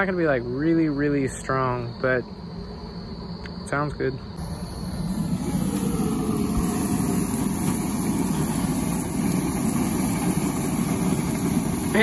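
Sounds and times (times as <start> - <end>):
gas grill burners rushing: 4.4 - 12.0.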